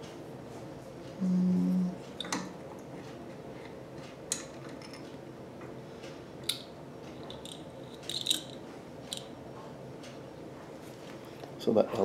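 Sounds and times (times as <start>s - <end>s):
faint steady hum: 0.0s - 12.0s
metal parts clicking: 7.3s - 9.3s.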